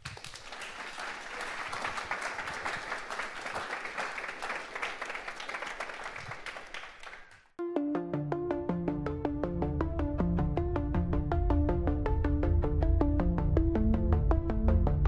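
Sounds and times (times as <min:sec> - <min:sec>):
audience applauding: 0:00.0 - 0:07.5
electronic background music: 0:07.6 - 0:15.0.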